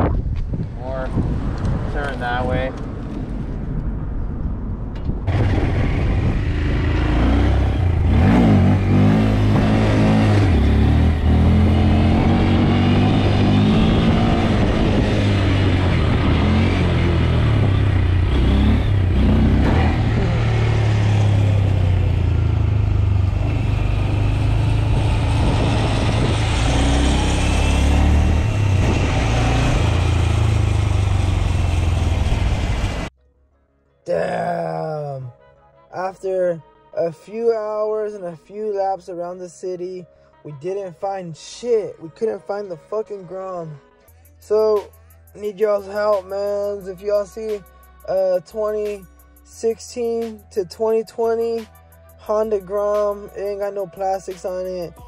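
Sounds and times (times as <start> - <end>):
wind rushing over microphone: 0.0 - 21.8, 23.6 - 30.6
small motorcycle engine revving: 5.3 - 32.7.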